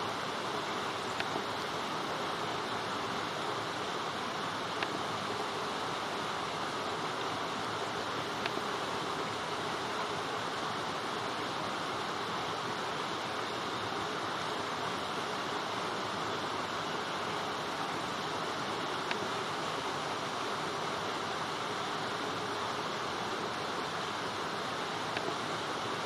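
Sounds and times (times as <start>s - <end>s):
light rain hiss: 0.0s - 26.0s
faint ticks: 1.0s - 1.4s, 4.7s - 5.0s, 8.4s - 8.7s, 19.0s - 19.3s, 25.1s - 25.4s.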